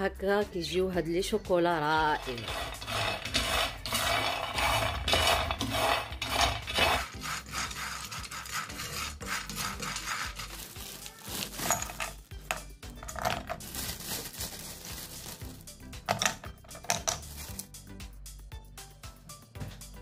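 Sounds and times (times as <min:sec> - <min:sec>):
nuts scraping in metal pan: 0:02.0 - 0:10.8.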